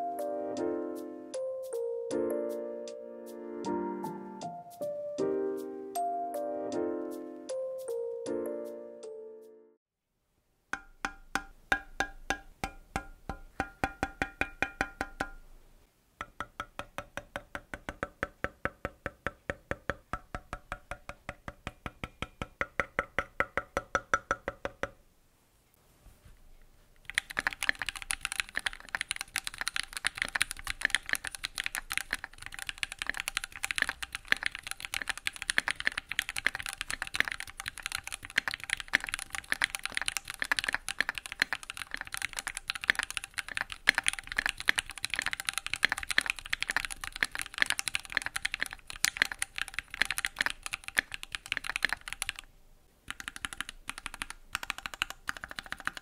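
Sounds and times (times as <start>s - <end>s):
fast typing on mechanical keyboard: 27.0s - 52.5s, 53.1s - 56.0s.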